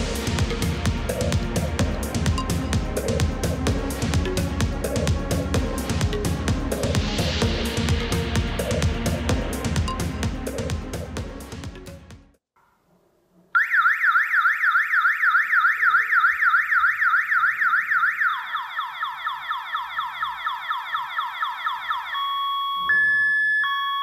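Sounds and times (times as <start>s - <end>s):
electronic alarm siren wailing: 13.6s - 24.0s.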